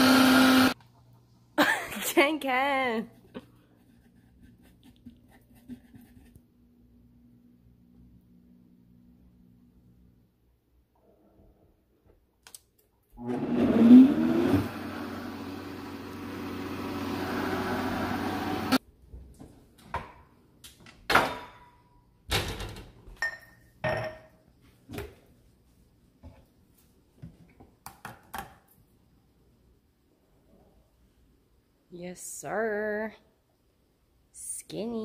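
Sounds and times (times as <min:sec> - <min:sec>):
blender motor whining: 0:00.0 - 0:00.8, 0:13.2 - 0:18.8
glasses clinking on stone counter: 0:23.2 - 0:24.3.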